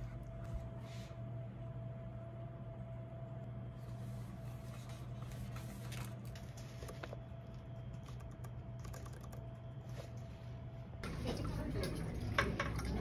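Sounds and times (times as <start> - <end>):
steady low hum: 0.0 - 13.0
typing on computer keyboard: 7.5 - 9.8.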